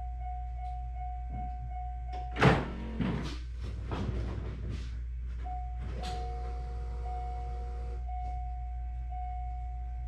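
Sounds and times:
car warning chime pinging: 5.5s - 10.0s.

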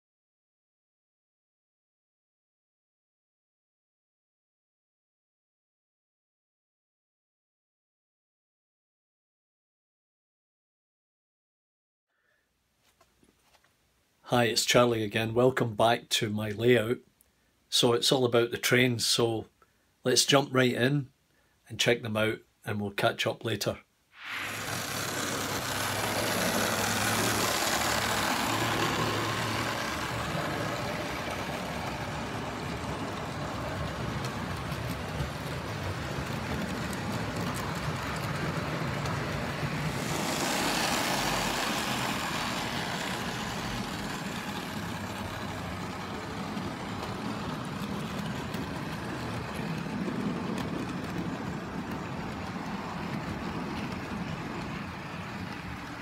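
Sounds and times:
model train motor whir: 24.2s - 56.0s
small wheels clattering on rail: 24.6s - 56.0s.

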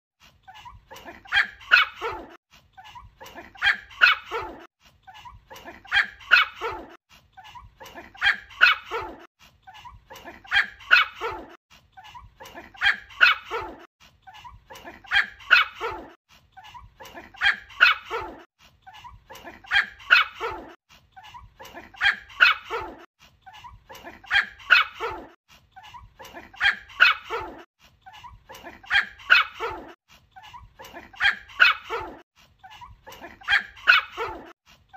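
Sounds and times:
puppy yapping: 0.6s - 4.7s, 8.2s - 11.6s, 14.8s - 16.2s, 19.4s - 20.8s, 24.2s - 25.4s, 28.2s - 30.0s, 32.8s - 34.5s.

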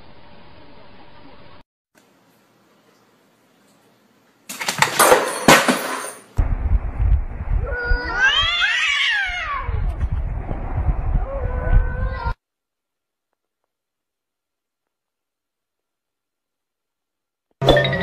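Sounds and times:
low rumble: 6.4s - 8.6s, 9.3s - 12.4s
cat yowling: 7.7s - 9.9s.

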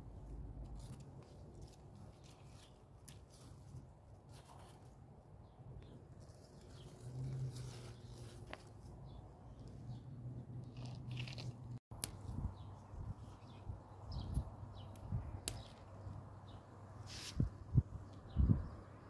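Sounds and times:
plant leaves rustling: 0.6s - 5.1s, 6.0s - 10.0s.

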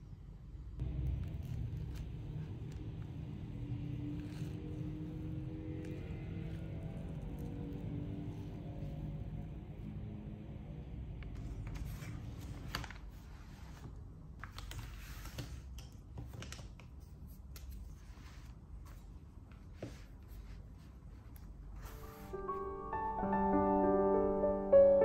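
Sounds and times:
pens clicking and tapping: 14.4s - 17.8s.

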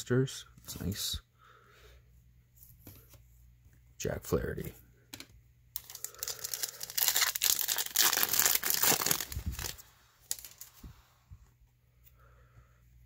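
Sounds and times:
foil wrapper crinkling: 5.8s - 10.8s.

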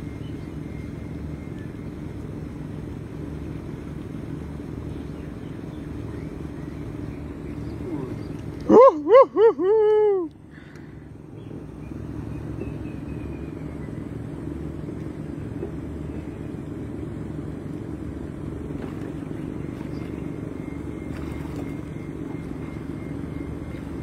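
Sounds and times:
boat motor droning: 0.0s - 24.0s.

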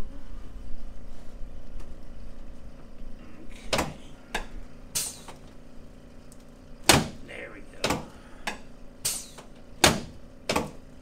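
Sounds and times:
steady low hum: 0.0s - 11.0s
sharp knocks: 6.8s - 7.2s.

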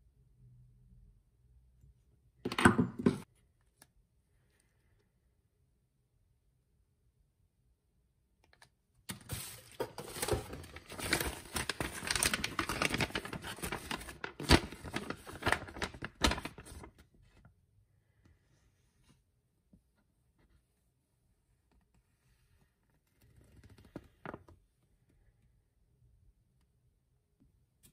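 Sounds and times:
packaging crinkling and rustling: 9.1s - 17.1s.

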